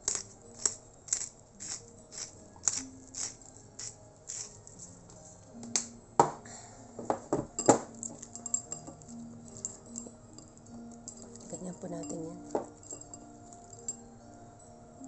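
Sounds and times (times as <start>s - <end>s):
pepper grinder clicking: 0.0s - 4.5s.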